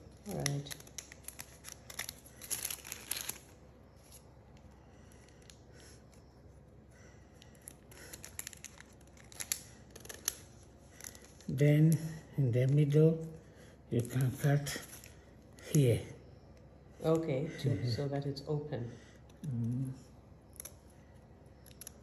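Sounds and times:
paper handling: 0.3 - 4.3, 7.6 - 11.6.

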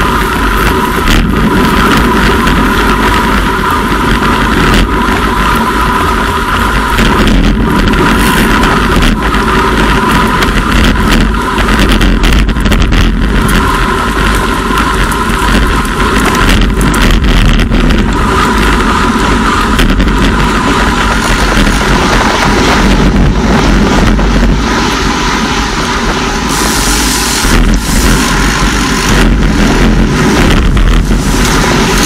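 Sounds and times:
wind and road noise: 0.0 - 32.0
tyre hiss on wet road: 26.2 - 29.1.

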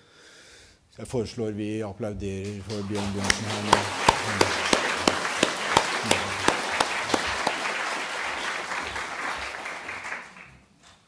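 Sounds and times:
audience applauding: 2.4 - 10.7
hands clapping close to microphone: 2.4 - 11.0.

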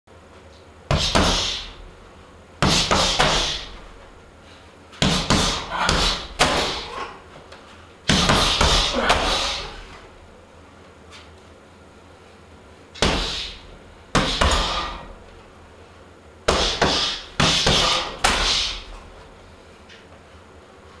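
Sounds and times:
strikes thudding on heavy bag: 13.0 - 13.6, 14.2 - 15.1.

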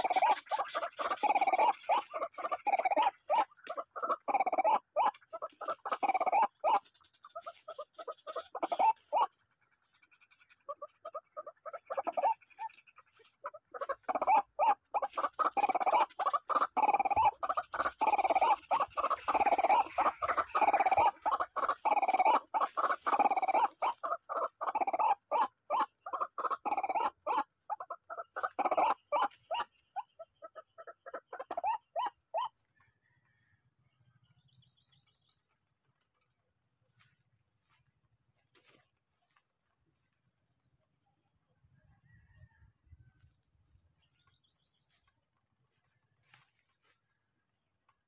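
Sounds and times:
bird calling rapid repeated notes: 0.0 - 32.5.

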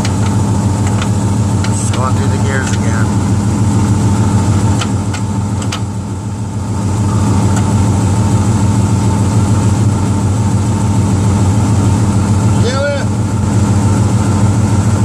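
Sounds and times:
transmission clicks and clunks: 0.0 - 3.1, 4.6 - 5.9, 7.5 - 7.8
engine idling: 0.0 - 15.0.

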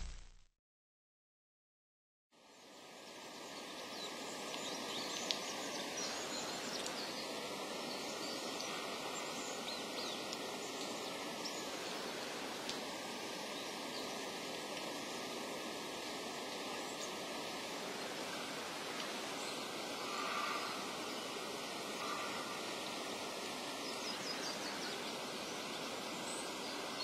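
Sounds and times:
outdoor background hiss: 2.4 - 27.0
faint bird chirps: 19.5 - 21.3, 22.0 - 23.0.

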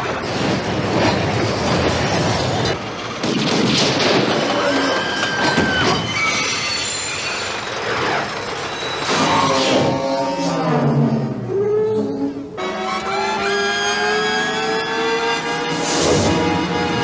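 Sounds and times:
cart wheels rattling on rails: 0.0 - 10.1
long high squeal: 4.7 - 16.0.

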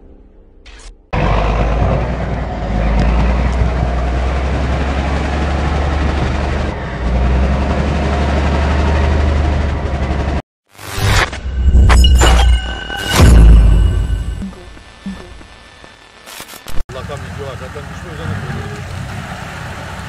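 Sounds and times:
diesel engine running under load: 1.2 - 10.4, 16.9 - 20.0.

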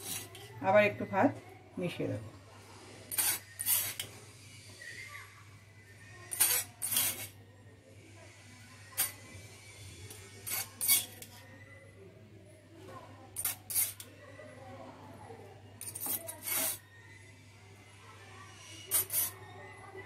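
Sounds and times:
spoon scraping and knocking pan: 0.0 - 0.6, 3.1 - 4.2, 6.3 - 7.4, 10.4 - 11.4, 13.4 - 14.1, 15.8 - 16.8, 18.9 - 19.4.

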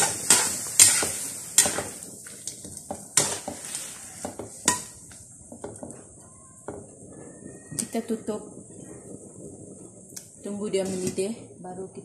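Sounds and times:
metal spatula scraping wok: 0.0 - 5.1, 10.7 - 11.4
sauce sizzling: 0.0 - 12.0.

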